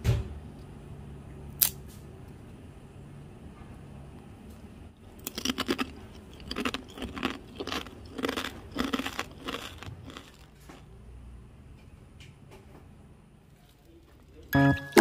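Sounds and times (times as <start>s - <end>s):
chips crunching: 5.2s - 10.8s.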